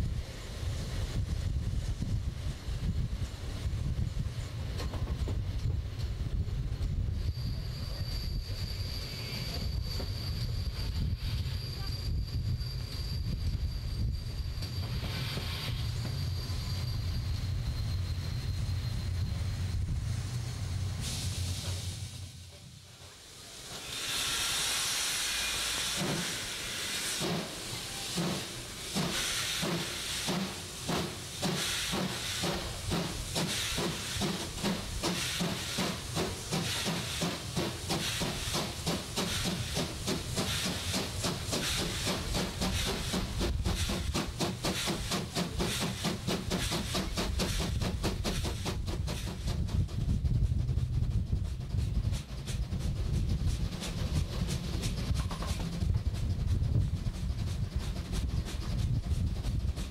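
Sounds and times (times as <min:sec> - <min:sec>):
steam hiss: 0:00.0 - 0:59.9
locomotive exhaust chuffs: 0:23.7 - 0:59.9.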